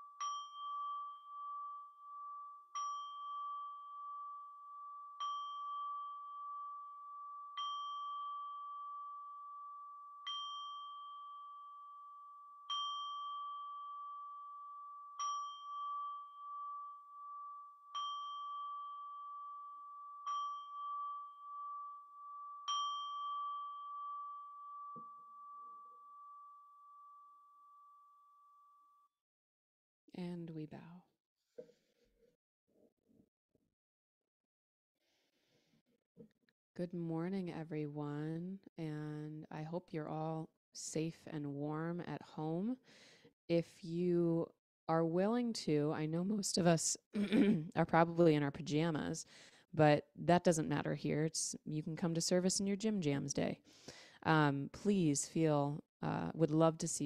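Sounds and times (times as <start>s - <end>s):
singing bowl struck: 0.0s - 28.5s.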